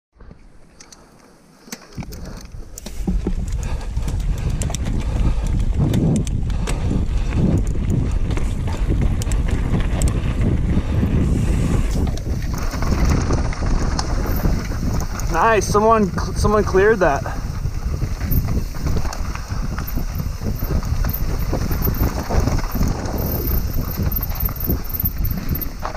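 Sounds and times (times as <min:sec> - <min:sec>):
bike chain rattling: 0:01.6 - 0:25.9
tyre rumble on trail: 0:01.8 - 0:25.9
wind on microphone: 0:02.0 - 0:25.9.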